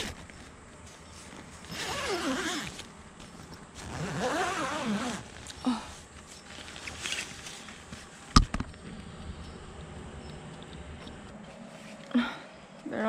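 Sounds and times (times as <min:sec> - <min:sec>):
tent fabric rustling: 0:00.0 - 0:08.3.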